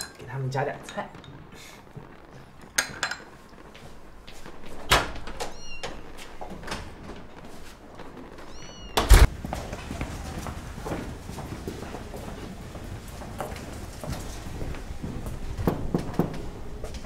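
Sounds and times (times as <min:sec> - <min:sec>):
cat meowing: 0:05.4 - 0:06.0, 0:08.5 - 0:09.1.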